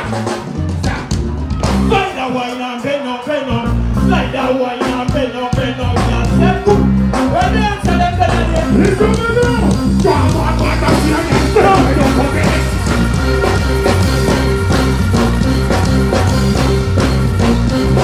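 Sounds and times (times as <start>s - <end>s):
dancehall music with heavy bass: 0.0s - 18.0s
person singing: 1.8s - 14.4s.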